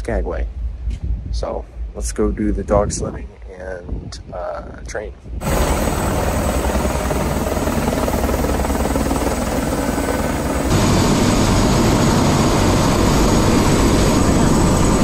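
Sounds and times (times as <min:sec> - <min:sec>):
helicopter rotor throbbing: 0:05.4 - 0:15.0.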